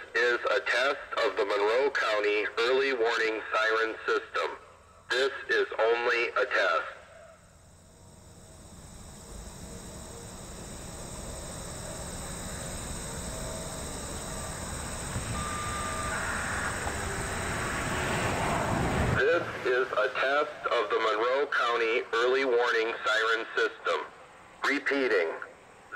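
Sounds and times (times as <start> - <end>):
high-pitched insect buzzing: 7.3 - 19.2
broad rushing noise: 7.7 - 20.6.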